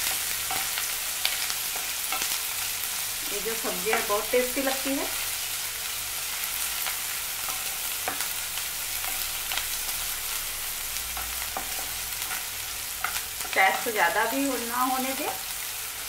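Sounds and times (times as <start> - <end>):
onions sizzling in oil: 0.0 - 16.0
spatula scraping and tapping pan: 11.1 - 13.9.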